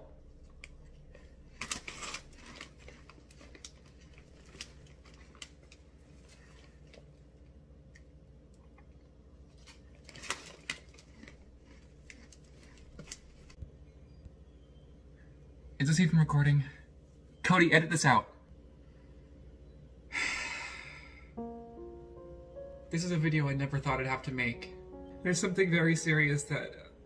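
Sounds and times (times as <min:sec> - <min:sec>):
faint steady hum: 0:00.0 - 0:27.0
snack bag crinkling: 0:00.6 - 0:07.2, 0:09.5 - 0:13.6.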